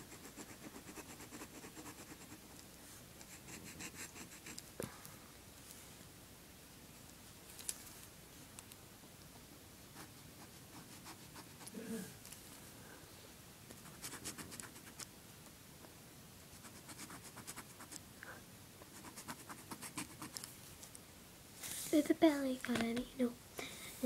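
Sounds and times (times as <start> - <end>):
pen scratching on paper: 0.0 - 2.5, 3.3 - 4.6, 13.8 - 15.0, 16.6 - 18.0, 18.9 - 20.5.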